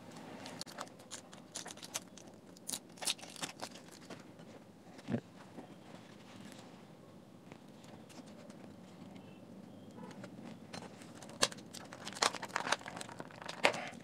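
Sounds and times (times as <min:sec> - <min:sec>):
foil pouch crinkling: 0:00.4 - 0:04.2, 0:11.0 - 0:14.0
sharp clicks and crackles: 0:00.4 - 0:04.2.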